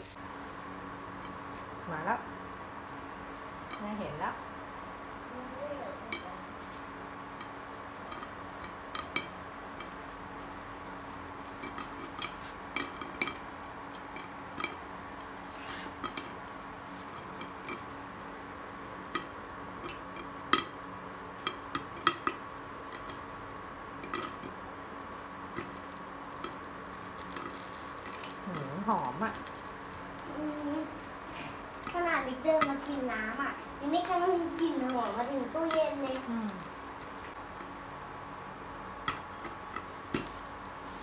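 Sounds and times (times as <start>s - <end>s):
faint hum: 0.0s - 41.0s
popcorn popping in pan: 0.0s - 41.0s
kernels tapping glass lid: 8.1s - 10.0s.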